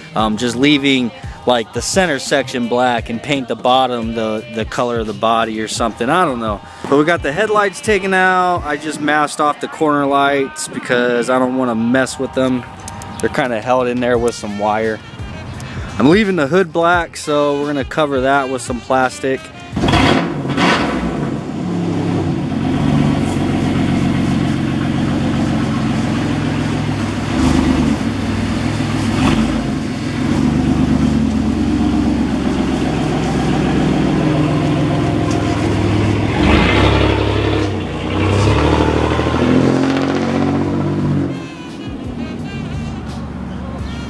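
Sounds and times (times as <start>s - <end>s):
car engine revving: 19.6s - 44.0s.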